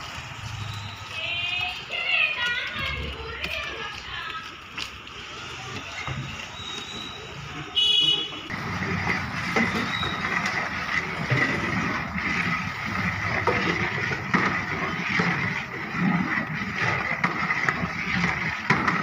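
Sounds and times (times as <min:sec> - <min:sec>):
metal ladle scraping a pot: 0:05.7 - 0:19.0.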